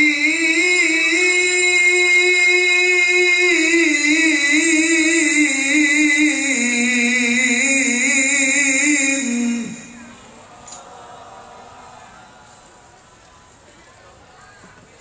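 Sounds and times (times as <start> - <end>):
man chanting melodic recitation: 0.0 - 10.2.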